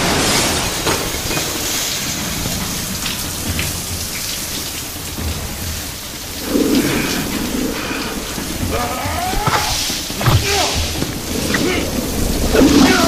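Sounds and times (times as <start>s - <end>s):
heavy water falling: 0.0s - 13.0s.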